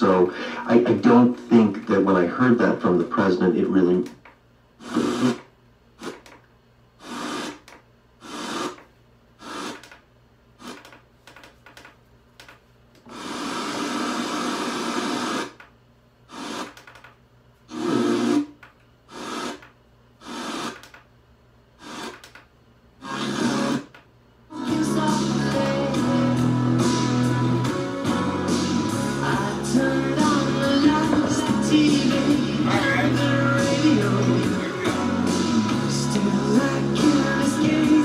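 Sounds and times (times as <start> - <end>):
radio broadcast sound: 0.0 - 4.2, 4.8 - 5.5, 32.6 - 33.4
radio static: 4.8 - 5.5, 17.7 - 18.5, 30.7 - 33.6.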